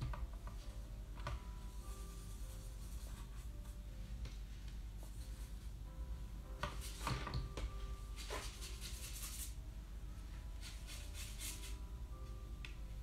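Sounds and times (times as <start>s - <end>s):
paintbrush scratching on paper: 1.8s - 3.8s, 5.0s - 5.8s, 6.7s - 7.1s, 8.0s - 9.6s, 10.6s - 11.8s.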